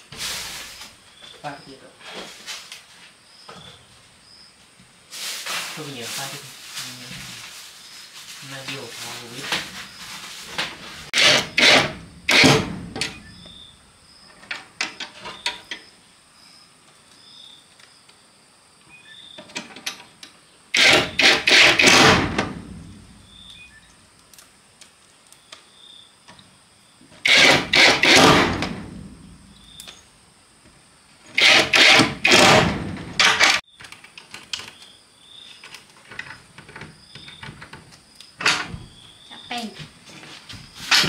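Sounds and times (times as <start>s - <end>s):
door banging and rattling: 10.5s - 13.7s, 20.8s - 23.4s, 27.2s - 29.6s, 31.3s - 33.6s, 36.1s - 39.0s.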